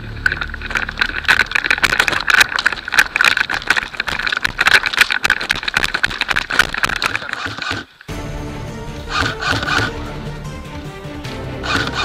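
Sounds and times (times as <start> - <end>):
steady whine: 0.0 - 5.7.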